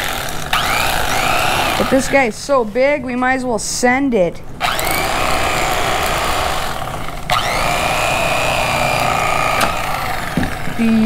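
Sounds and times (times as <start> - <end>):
electric knife motor whine: 0.0 - 2.2, 4.6 - 11.0.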